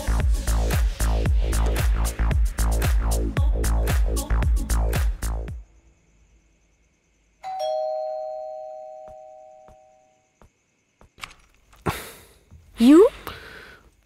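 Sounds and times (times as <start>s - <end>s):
two-note doorbell chime: 7.4s - 10.2s.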